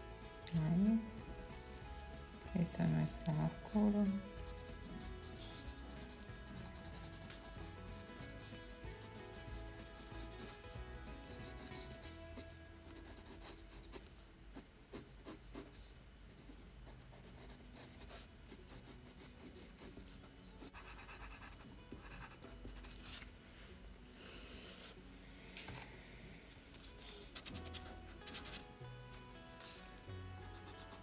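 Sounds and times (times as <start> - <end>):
pencil scratching on paper: 1.1 - 3.8, 4.4 - 10.6, 11.3 - 14.1, 16.4 - 23.2, 26.8 - 28.7, 29.6 - 31.0.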